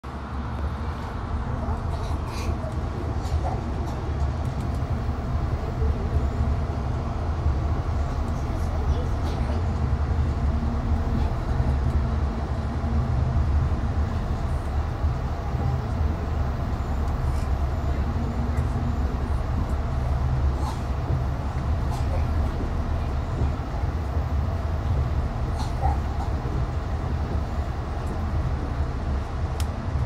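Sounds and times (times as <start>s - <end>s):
train rumbling: 0.0s - 30.0s.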